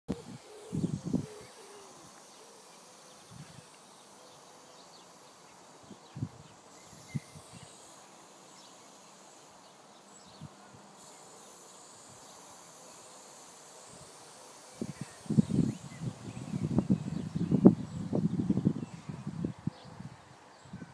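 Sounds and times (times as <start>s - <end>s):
spray paint can hissing: 6.7s - 9.5s, 11.0s - 16.1s.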